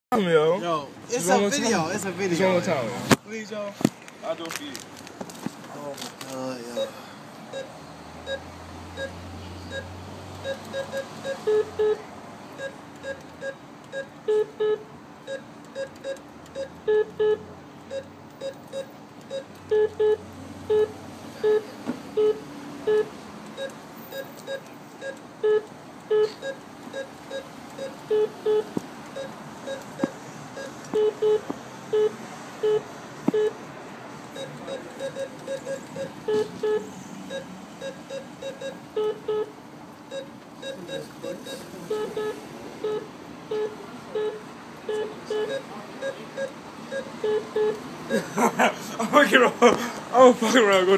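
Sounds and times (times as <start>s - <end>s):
keypad short beeps: 6.7s - 12.0s, 12.6s - 33.6s, 34.3s - 39.5s, 40.1s - 48.2s.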